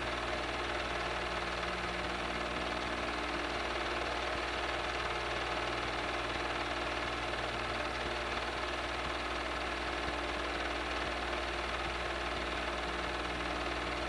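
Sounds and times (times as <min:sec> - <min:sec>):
movie projector whirring: 0:00.0 - 0:14.0.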